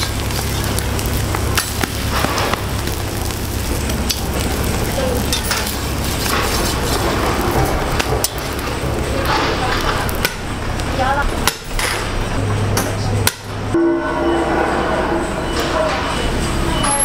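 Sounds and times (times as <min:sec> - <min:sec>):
eggs sizzling on griddle: 0:00.0 - 0:11.2
metal spatula scraping griddle: 0:05.2 - 0:10.1, 0:13.8 - 0:16.2
low hum: 0:12.0 - 0:17.0.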